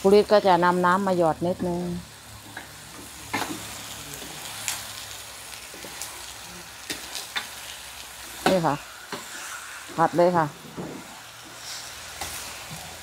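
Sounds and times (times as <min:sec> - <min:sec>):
meat sizzling in a wok: 0:00.0 - 0:13.0
spatula scraping and knocking wok: 0:01.4 - 0:04.6, 0:06.8 - 0:13.0.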